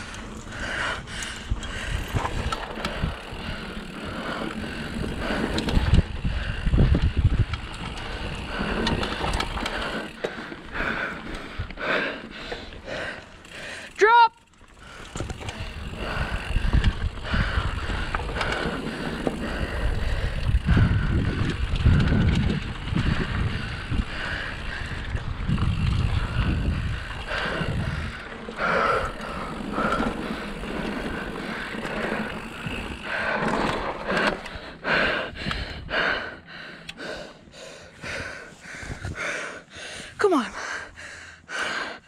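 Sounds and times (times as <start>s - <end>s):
wind rumble on microphone: 0.0s - 9.8s, 15.1s - 33.2s, 38.0s - 39.3s
bike rattling over rough ground: 0.0s - 39.6s.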